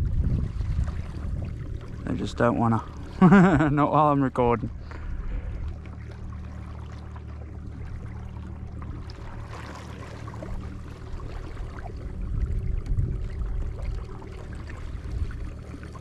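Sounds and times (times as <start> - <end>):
water around hull: 0.0 - 16.0.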